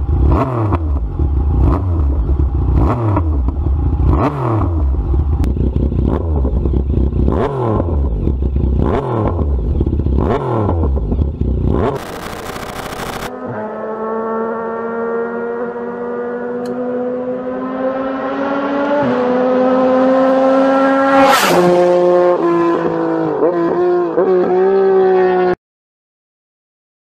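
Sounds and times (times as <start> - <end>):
motorcycle engine passing by: 5.7 - 25.6.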